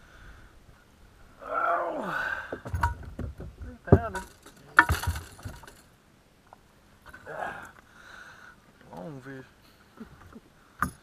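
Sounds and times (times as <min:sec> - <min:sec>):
metallic clinks and knocks: 0:02.7 - 0:03.2, 0:04.0 - 0:05.9, 0:10.8 - 0:11.0.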